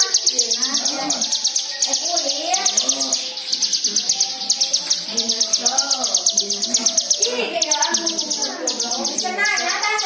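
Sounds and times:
bird chattering trill: 0.0s - 10.0s.

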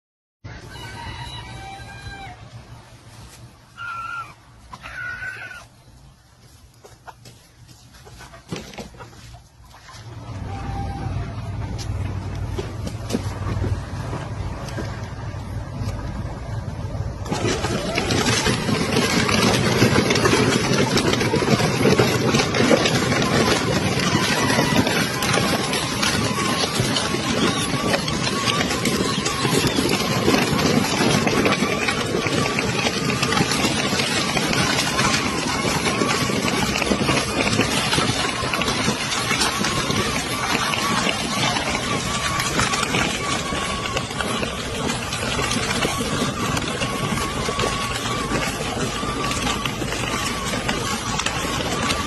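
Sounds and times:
chicken calling: 0.5s - 2.6s, 3.7s - 5.9s
plastic wheels crunching on gravel: 0.5s - 52.0s
chicken squawks: 3.7s - 5.7s.

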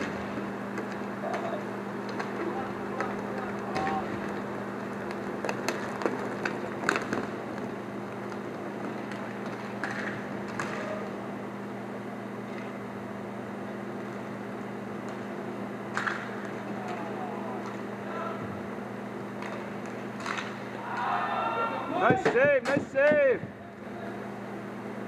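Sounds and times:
hockey sticks and puck clacking: 0.0s - 11.1s, 15.0s - 17.9s, 19.3s - 21.2s, 21.9s - 23.5s
steady low hum: 0.0s - 25.0s.

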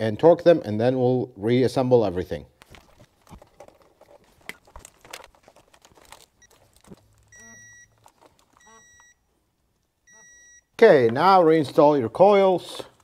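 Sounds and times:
torque wrench electronic beeps: 7.3s - 7.9s, 8.6s - 9.2s, 10.1s - 10.7s.

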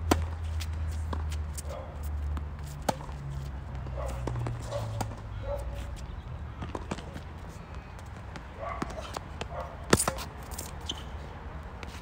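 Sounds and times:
racket hitting tennis ball: 0.0s - 5.9s, 8.1s - 11.1s.

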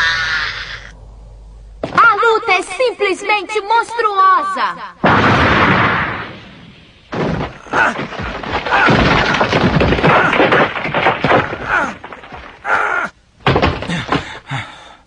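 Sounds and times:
body tumbling down rocks: 7.1s - 14.6s.

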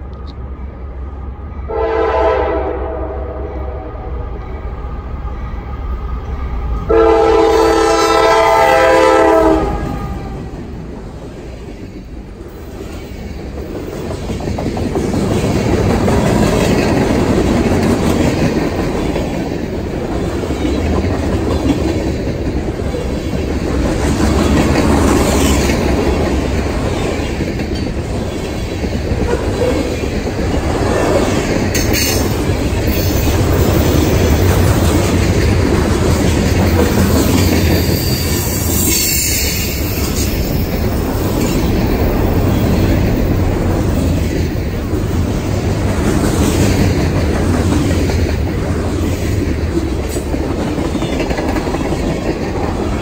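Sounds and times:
train horn chord: 1.7s - 4.3s, 6.9s - 10.6s
train wheels clattering over rails: 9.8s - 53.0s.

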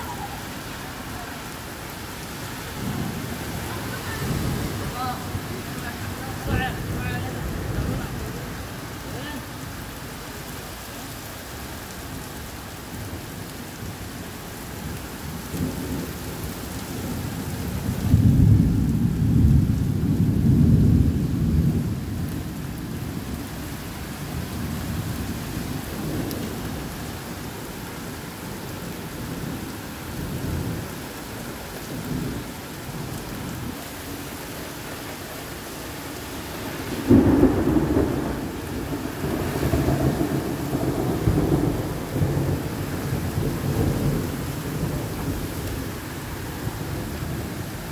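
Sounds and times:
heavy rain falling: 0.0s - 47.9s
thunder rumbling: 2.4s - 9.0s, 16.9s - 27.5s, 36.5s - 47.9s
sharp thunderclap: 37.0s - 45.2s.

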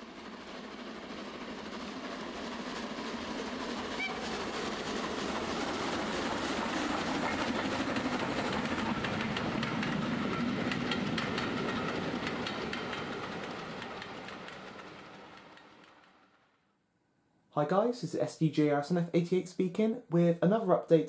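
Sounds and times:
model train rumbling: 0.0s - 16.6s
wheels clicking over rail joints: 4.5s - 16.1s.

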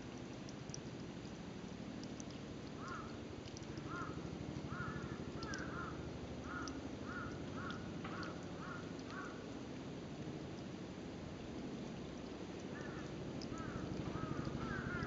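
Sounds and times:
low background noise: 0.0s - 15.0s
crow cawing: 2.8s - 3.1s, 3.9s - 9.4s, 12.8s - 15.0s.

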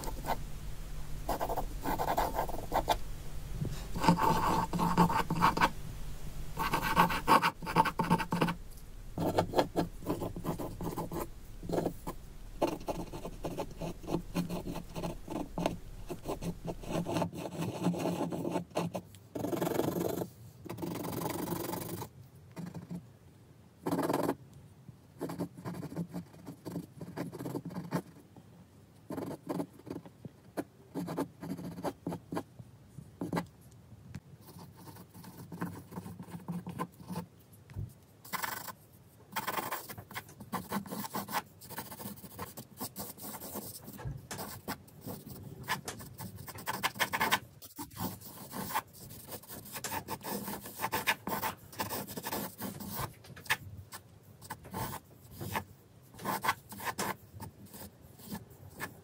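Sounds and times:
pencil sketching on paper: 0.0s - 0.5s, 1.2s - 3.0s, 3.7s - 5.8s, 6.5s - 8.6s, 9.2s - 23.0s, 31.0s - 32.5s, 34.4s - 37.3s, 38.2s - 38.8s, 39.4s - 53.6s, 54.4s - 59.0s.

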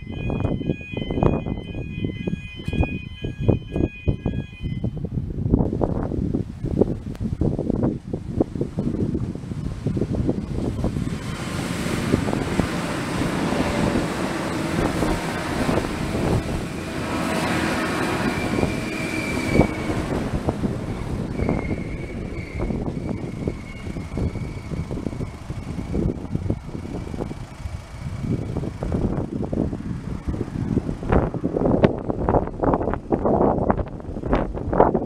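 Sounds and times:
diesel train passing: 0.0s - 4.9s, 9.6s - 34.9s
thin high tone: 0.0s - 5.0s
wind buffeting microphone: 0.0s - 35.0s.

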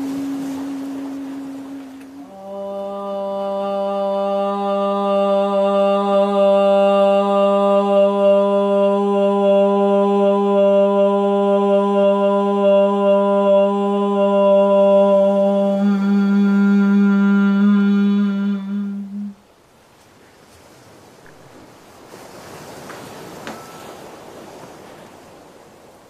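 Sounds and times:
person humming low drone: 0.0s - 19.4s.

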